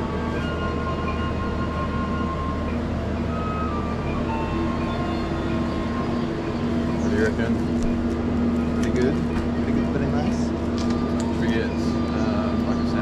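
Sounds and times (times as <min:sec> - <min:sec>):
soft music of long held notes: 0:00.0 - 0:13.0
steady low hum: 0:00.0 - 0:13.0.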